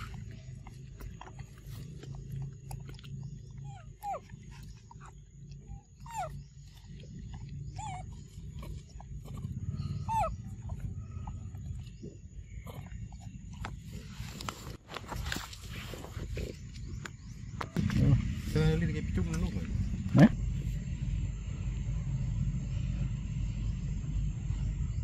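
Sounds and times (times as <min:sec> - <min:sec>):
low steady rumble: 0:00.0 - 0:25.0
monkey whimpering calls: 0:05.7 - 0:06.8, 0:07.8 - 0:09.4, 0:10.0 - 0:11.2.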